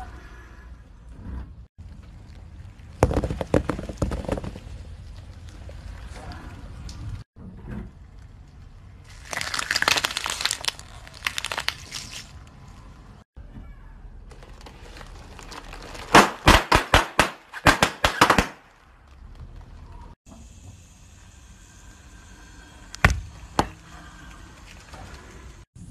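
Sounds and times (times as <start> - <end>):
tyre crunching plastic: 9.1 - 12.5, 14.3 - 18.4.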